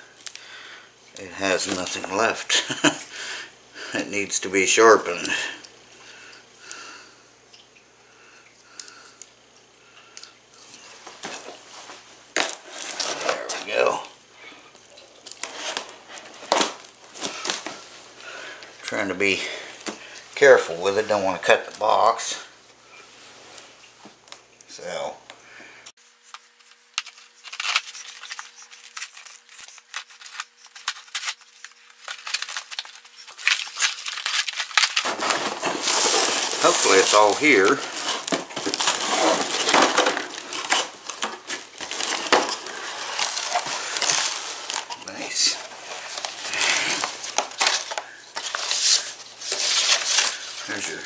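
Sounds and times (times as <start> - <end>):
knife scraping through packing tape: 26.4 - 44.9.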